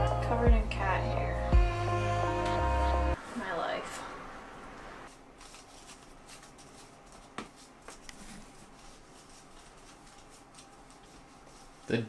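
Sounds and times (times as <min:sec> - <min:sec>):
shirt fabric rustling: 0:05.0 - 0:12.0.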